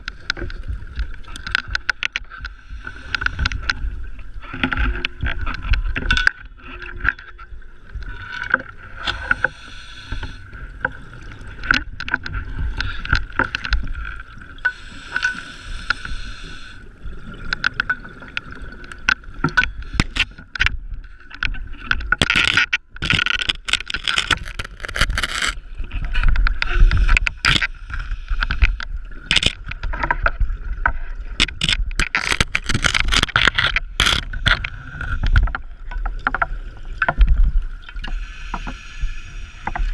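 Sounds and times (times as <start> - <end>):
diver breathing through regulator: 9.0 - 10.5, 14.7 - 16.8, 38.0 - 39.9
gear knocking and scraping on rock: 22.1 - 25.6, 31.4 - 34.7.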